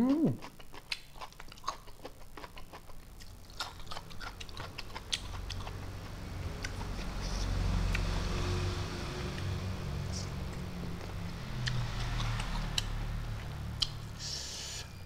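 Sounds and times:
man chewing food: 0:00.0 - 0:14.9
wet mouth clicks: 0:11.6 - 0:12.6.

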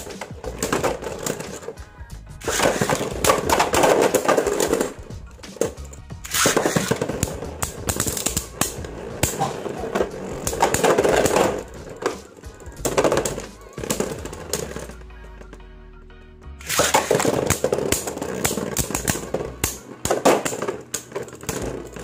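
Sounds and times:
background music: 0:00.0 - 0:22.0
spinning tops clattering: 0:02.4 - 0:15.5, 0:16.6 - 0:22.0.

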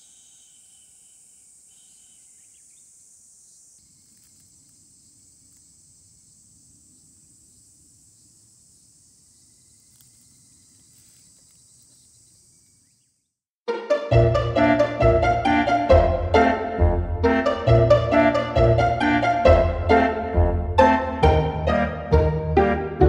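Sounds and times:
insect chorus: 0:00.0 - 0:13.3.

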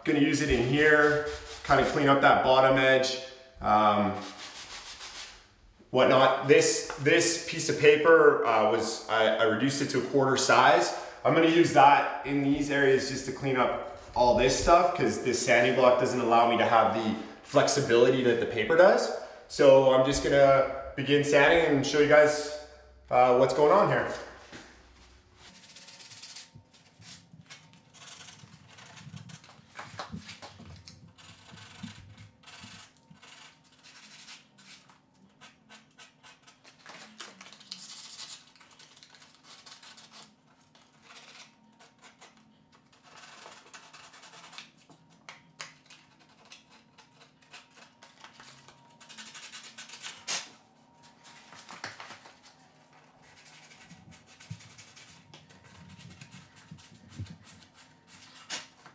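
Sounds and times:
sandpaper scratching on wood: 0:00.4 - 0:02.0, 0:04.0 - 0:05.4.

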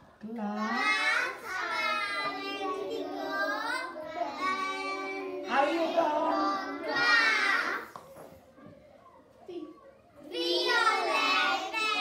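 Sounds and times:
children singing: 0:00.9 - 0:07.9, 0:10.2 - 0:12.0.

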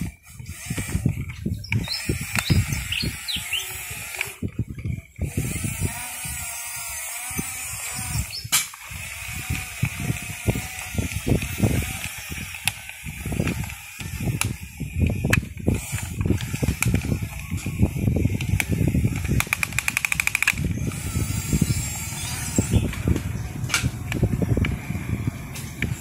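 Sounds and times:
fast rattle of clicks: 0:00.0 - 0:26.0
small electric motors whining: 0:00.0 - 0:26.0
plastic tracks clattering over sticks: 0:18.4 - 0:20.6.

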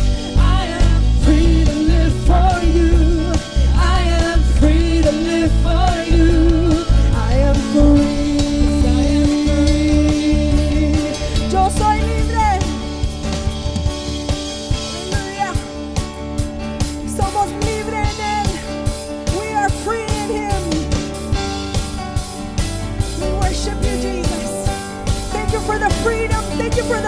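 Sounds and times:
acoustic guitar: 0:00.0 - 0:27.0
worship band playing: 0:00.0 - 0:27.0
woman singing: 0:00.3 - 0:12.7, 0:17.1 - 0:18.7, 0:19.3 - 0:20.9, 0:23.2 - 0:24.7, 0:25.3 - 0:27.0.

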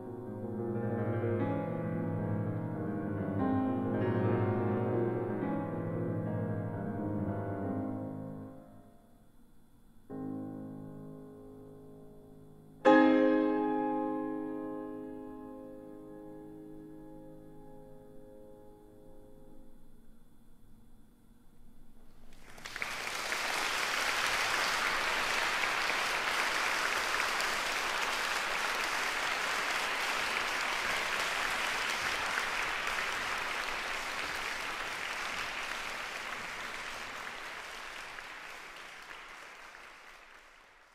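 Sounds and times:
faint piano tones: 0:00.0 - 0:22.4
audience applauding: 0:22.2 - 0:40.9.

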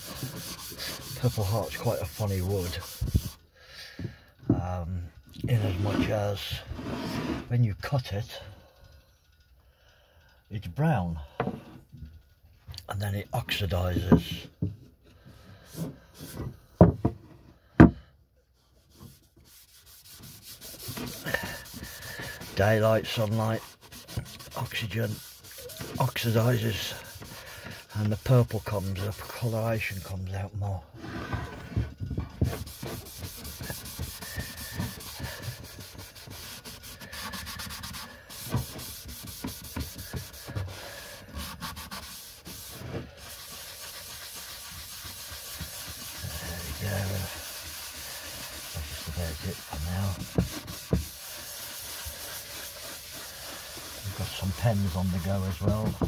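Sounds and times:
sponge scrubbing wood: 0:00.0 - 0:03.4, 0:18.6 - 0:56.0.

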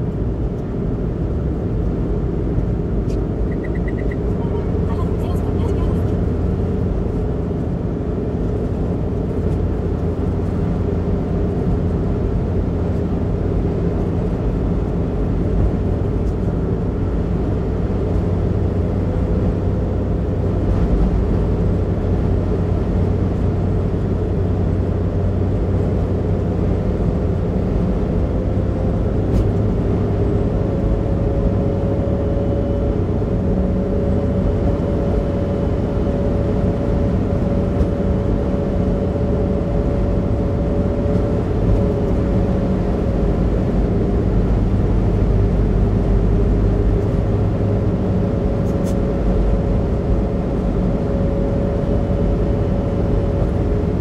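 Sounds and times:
car engine running: 0:00.0 - 0:54.0
road and tyre rumble: 0:00.0 - 0:54.0
faint whine: 0:02.3 - 0:07.2.

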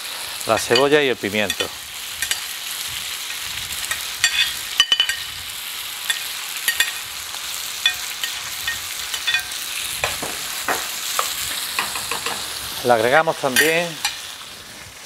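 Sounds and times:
vegetables sizzling in oil: 0:00.0 - 0:15.0
metal spoon clinking on plate: 0:03.9 - 0:05.3, 0:06.1 - 0:07.0, 0:07.8 - 0:10.8.

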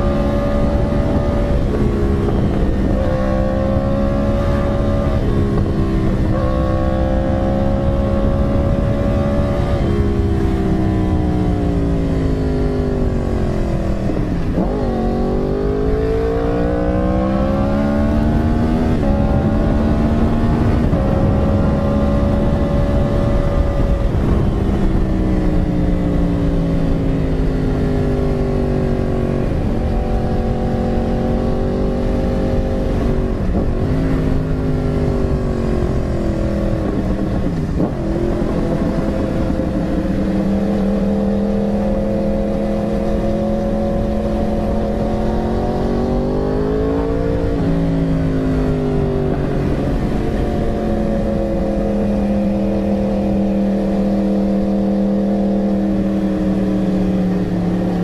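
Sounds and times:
motorcycle engine running: 0:00.0 - 0:58.0
rush of wind: 0:00.0 - 0:58.0.

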